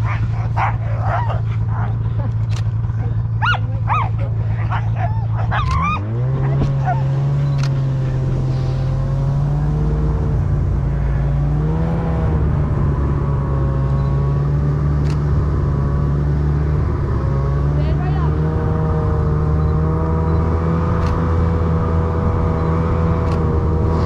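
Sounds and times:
dog yelping: 0.0 - 2.2, 3.0 - 7.4
snowmobile engine running: 0.0 - 24.0.

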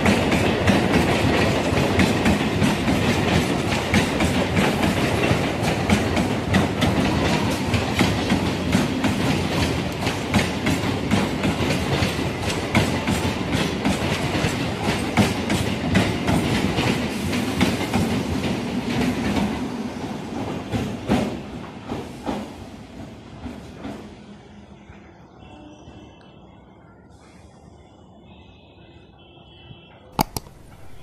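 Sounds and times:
train wheels clattering over rail joints: 0.0 - 19.6
steady train rumble: 0.0 - 29.2.

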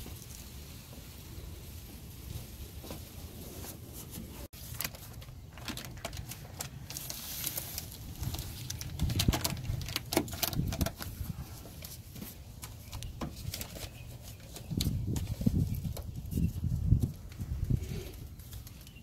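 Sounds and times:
plastic sheet crinkling: 3.5 - 17.3.

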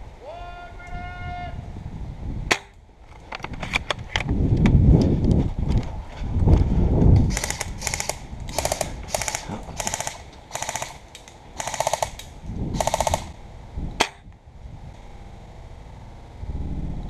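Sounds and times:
sharp snap: 2.5 - 2.8, 14.0 - 14.2
airsoft guns firing bursts: 7.3 - 13.3.

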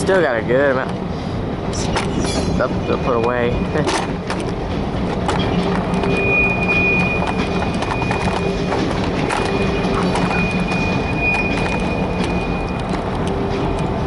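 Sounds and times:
diesel locomotive drone: 0.0 - 14.0
train wheels clicking on track: 0.0 - 14.0
high steel-on-steel squeal: 1.8 - 3.2, 5.4 - 12.9.

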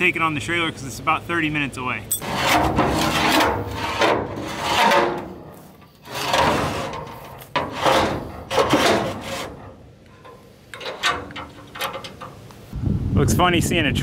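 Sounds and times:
metal ramps scraping on metal: 2.2 - 12.5.

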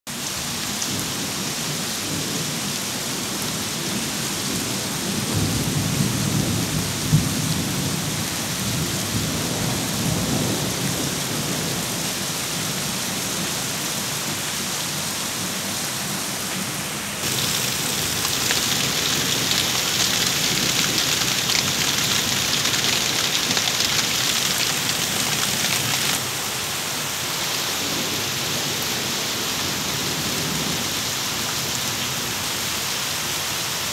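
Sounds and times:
heavy rain pouring: 0.1 - 33.9
low rumble of thunder: 4.5 - 12.1.

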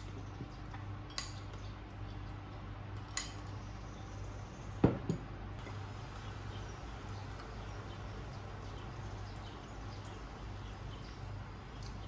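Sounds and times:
glass knocking on wooden table: 4.8 - 5.2.

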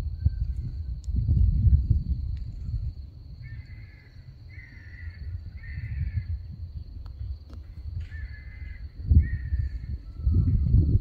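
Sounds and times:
bird calling: 3.4 - 6.3, 7.2 - 10.6.

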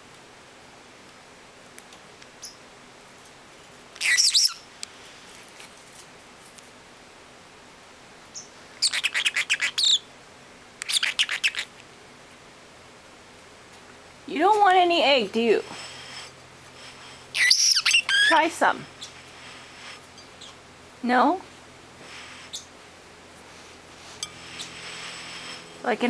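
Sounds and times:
parrotlet chirping: 4.0 - 4.6, 8.3 - 10.1, 10.8 - 11.8, 17.3 - 19.2, 22.4 - 22.7.

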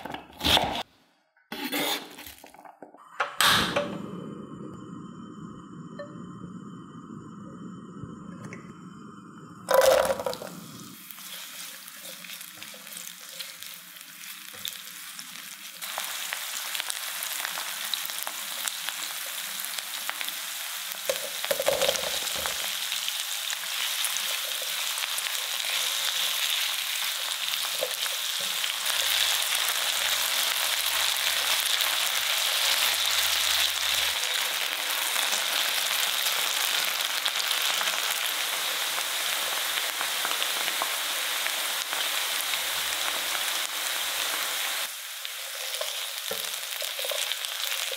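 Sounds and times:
onion sizzling in a frying pan: 9.7 - 47.9
potatoes added to hot oil: 9.7 - 47.9.

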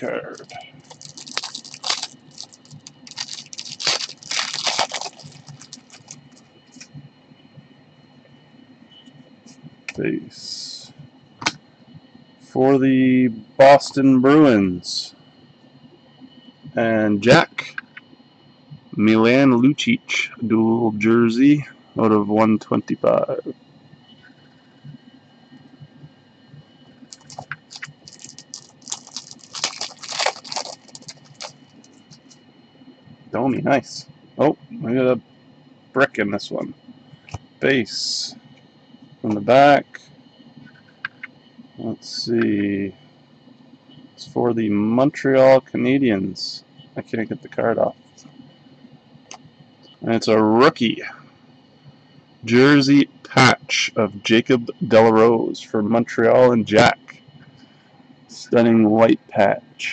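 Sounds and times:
trading cards rustling and clicking: 0.4 - 6.2, 27.2 - 32.3.

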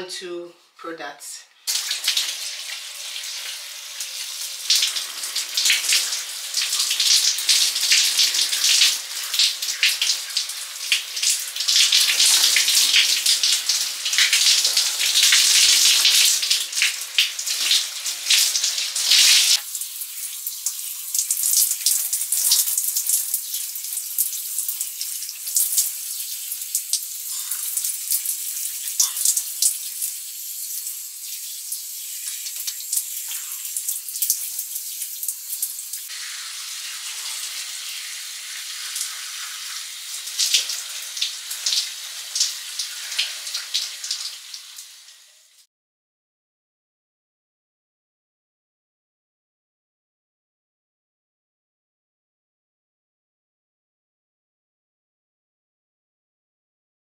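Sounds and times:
tap water splashing on hair: 32.2 - 36.1.

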